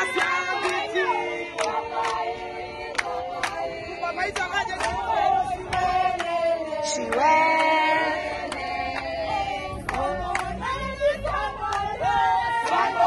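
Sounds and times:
women singing together: 0.0 - 13.0
hand claps: 0.1 - 3.6, 4.4 - 5.0.

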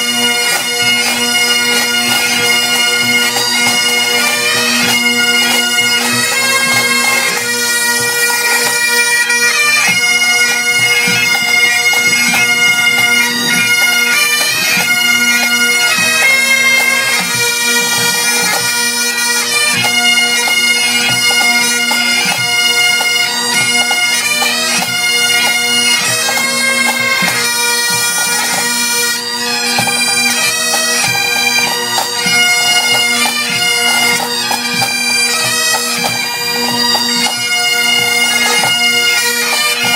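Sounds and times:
instrumental melody: 0.0 - 39.9.

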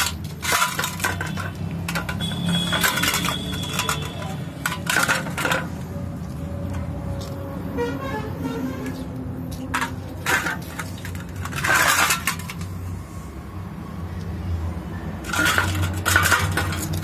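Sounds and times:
steel bowl clinking: 15.2 - 17.0.

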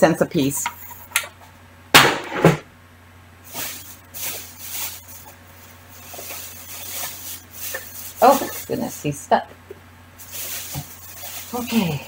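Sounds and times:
packing material rustling: 3.5 - 9.0, 10.2 - 12.0.

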